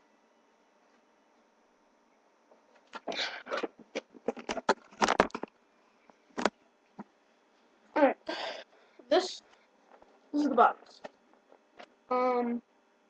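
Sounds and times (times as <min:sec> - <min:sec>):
objects rustling and clicking: 0:02.5 - 0:07.1.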